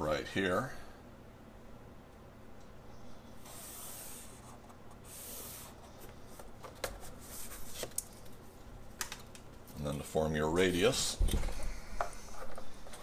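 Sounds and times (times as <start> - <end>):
marker scratching strokes: 3.4 - 5.8.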